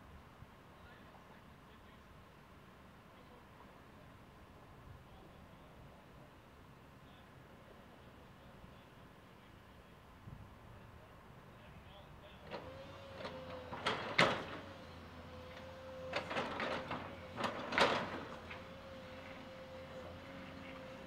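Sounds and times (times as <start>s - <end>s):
excavator bucket scraping rubble: 16.1s - 18.8s.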